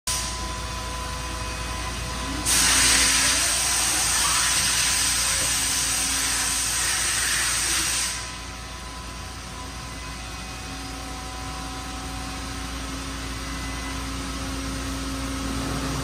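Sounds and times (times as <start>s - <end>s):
steady machine hum: 0.1s - 16.0s
loud hiss of waterjet cutting: 2.4s - 8.4s.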